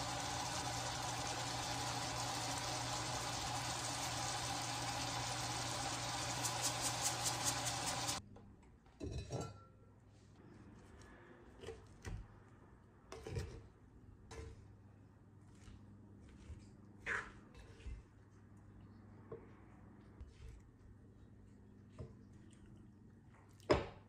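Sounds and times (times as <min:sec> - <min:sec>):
rice hissing in a pot: 0:00.0 - 0:08.2.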